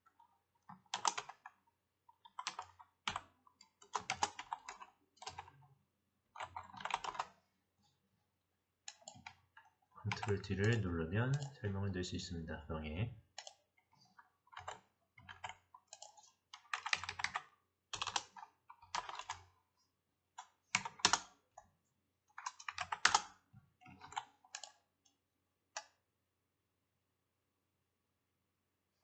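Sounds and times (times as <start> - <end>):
computer keyboard typing: 0.7 - 1.6, 2.2 - 5.6, 6.3 - 7.4, 8.9 - 11.6, 13.3 - 13.6, 14.5 - 19.6, 20.4 - 21.4, 22.3 - 24.8.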